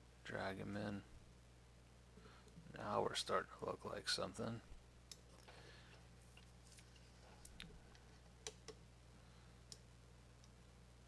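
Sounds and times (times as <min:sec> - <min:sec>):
low steady hum: 0:00.0 - 0:11.0
computer mouse clicks: 0:08.4 - 0:08.8.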